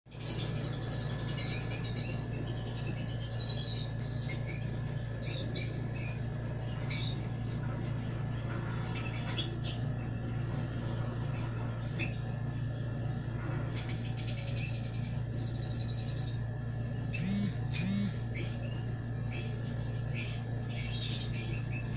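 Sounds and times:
lovebirds chirping: 0.1 - 21.9
steady low hum: 0.1 - 21.9.

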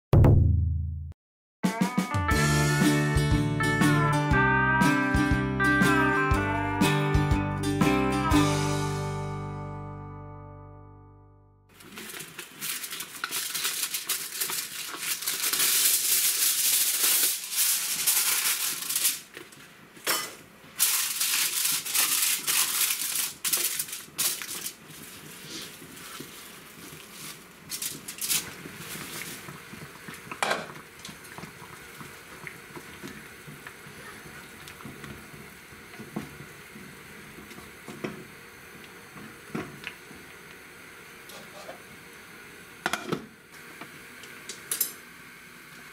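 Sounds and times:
aluminium foil crinkling: 11.7 - 19.7, 20.8 - 29.6.

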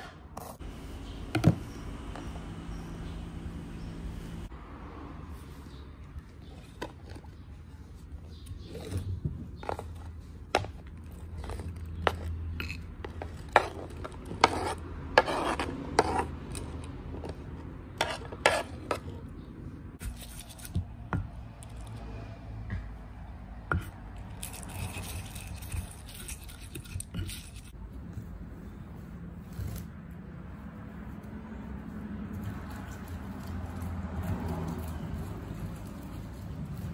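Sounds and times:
knife scraping wooden tray: 8.6 - 17.4, 18.0 - 19.2
stone pestle grinding in mortar: 8.6 - 17.4, 18.0 - 19.1.

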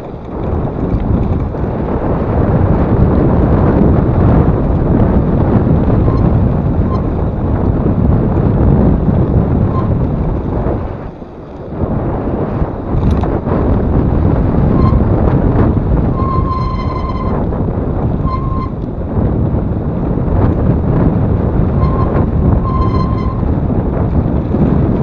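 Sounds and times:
wind buffeting microphone: 0.0 - 25.0
bike brakes squealing: 6.1 - 7.1, 14.7 - 15.2, 16.2 - 17.4, 18.2 - 18.8, 21.8 - 23.4.

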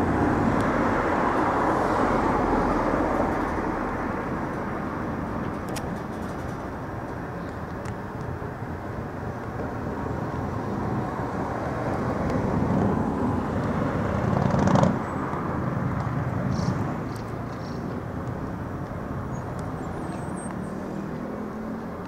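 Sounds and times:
vehicle passing: 8.6 - 22.0.

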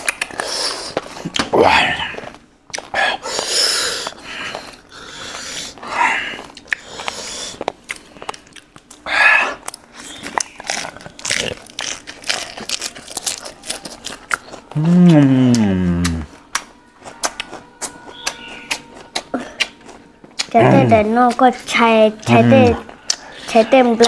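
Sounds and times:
person biting and chewing food: 0.0 - 5.6, 6.3 - 23.8
lettuce leaves rustling: 10.3 - 15.2.

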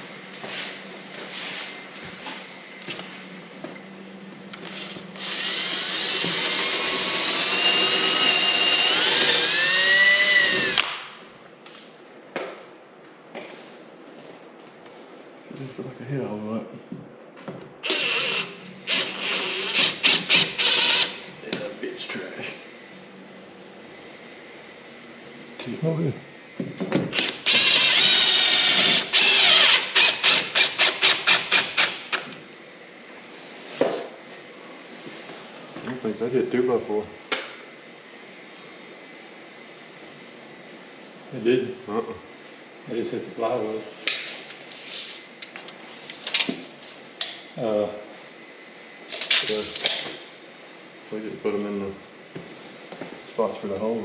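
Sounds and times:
cordless drill boring wood: 4.7 - 11.0, 17.8 - 21.3, 27.1 - 32.4.

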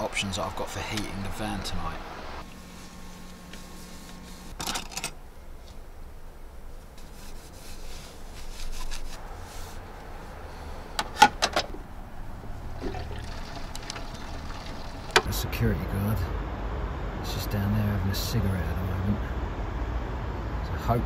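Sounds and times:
cloth wiping counter: 2.5 - 4.6, 7.0 - 10.4.

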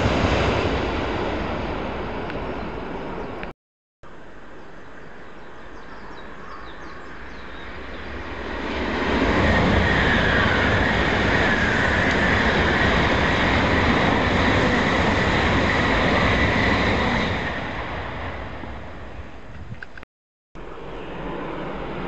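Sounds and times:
high speed train rushing past: 0.0 - 3.4, 7.2 - 19.4, 20.6 - 22.0.

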